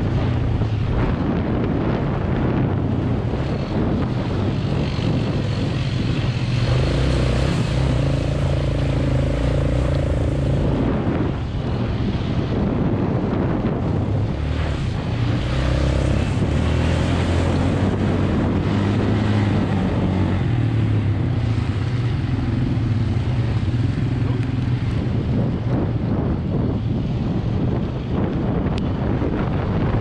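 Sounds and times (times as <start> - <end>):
quad bike engine running: 3.0 - 11.5, 14.3 - 25.3.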